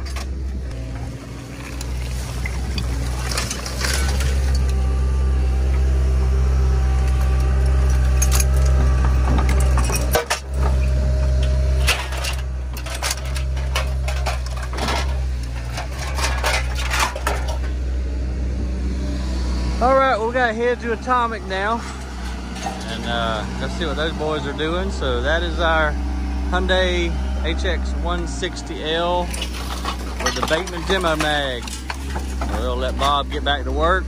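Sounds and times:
diesel engine running: 0:00.0 - 0:34.0
bucket scraping through trash: 0:00.9 - 0:04.8, 0:08.2 - 0:17.7, 0:20.9 - 0:24.7, 0:29.0 - 0:33.6
metal pieces clinking: 0:01.6 - 0:04.8, 0:07.8 - 0:10.9, 0:11.8 - 0:17.7, 0:29.2 - 0:32.7.

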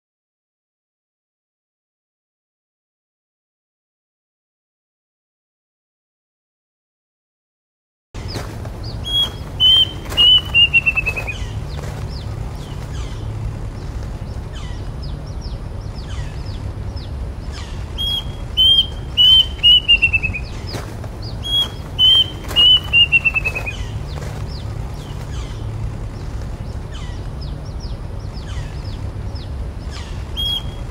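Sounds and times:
birds chirping faintly: 0:08.2 - 0:30.9
cuckoo singing: 0:09.0 - 0:11.6, 0:17.6 - 0:24.3, 0:29.9 - 0:30.9.

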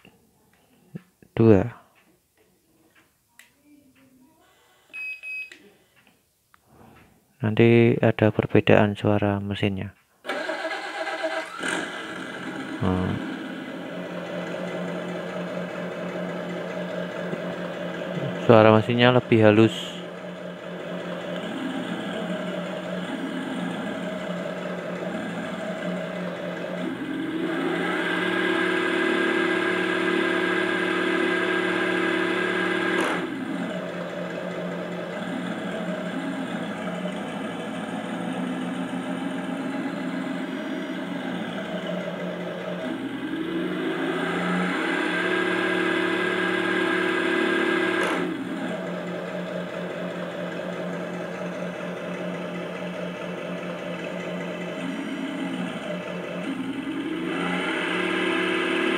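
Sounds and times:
truck engine sound from speaker: 0:12.0 - 0:58.9.

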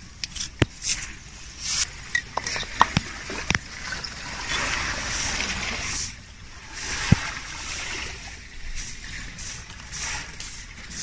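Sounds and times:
seashell set down on stones: 0:02.1 - 0:03.6
surf washing on beach: 0:02.9 - 0:11.0.

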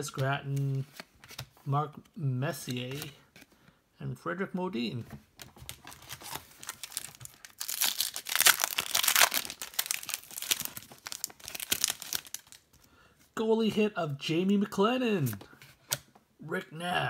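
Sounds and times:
foil wrapper tearing and crinkling: 0:05.7 - 0:12.6.

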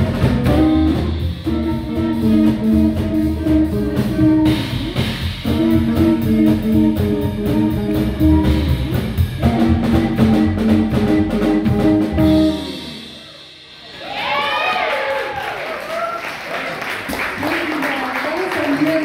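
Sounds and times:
swing jazz band playing: 0:00.0 - 0:13.9.

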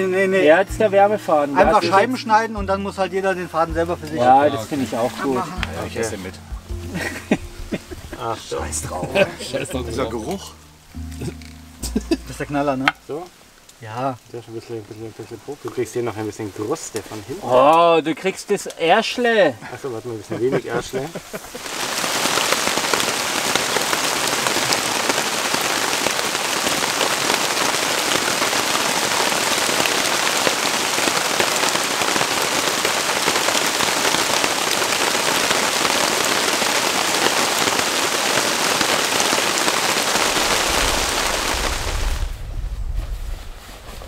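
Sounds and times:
steady rain: 0:00.0 - 0:44.0
low rumble: 0:40.6 - 0:44.0.

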